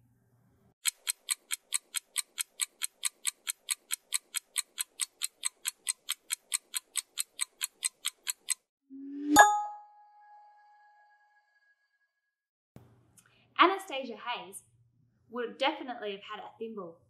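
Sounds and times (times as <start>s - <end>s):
clock ticking timer: 0.8s - 8.7s
bell-like ding: 9.0s - 11.6s.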